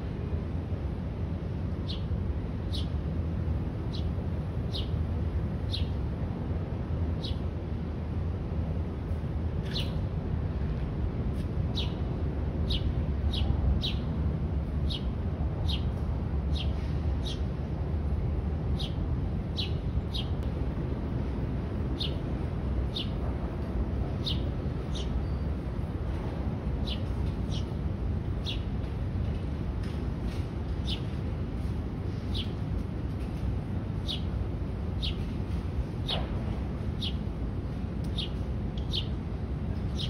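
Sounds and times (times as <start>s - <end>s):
sparrows chirping: 1.8s - 6.1s, 7.1s - 7.5s, 9.6s - 10.1s, 11.3s - 17.6s, 18.7s - 20.5s, 21.8s - 23.2s, 24.0s - 28.8s, 30.3s - 36.2s, 36.8s - 40.0s.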